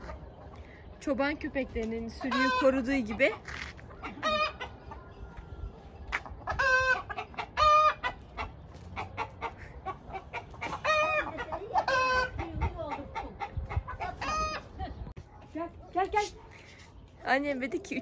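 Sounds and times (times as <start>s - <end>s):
chickens clucking: 0.0s - 18.0s
loud chicken calls: 2.2s - 5.4s, 6.2s - 14.8s.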